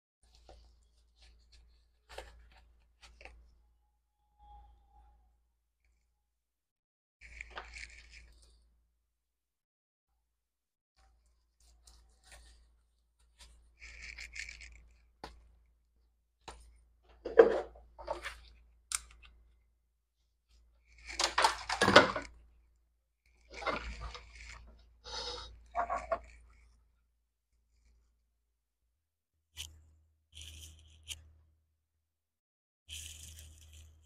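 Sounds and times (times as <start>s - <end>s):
rustling of gloved hands: 11.0s - 19.7s.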